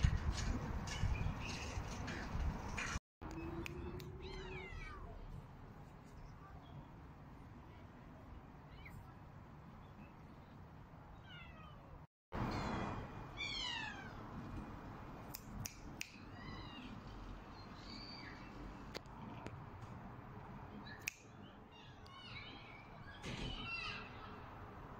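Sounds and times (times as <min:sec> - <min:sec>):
cat meowing: 0:03.9 - 0:05.2.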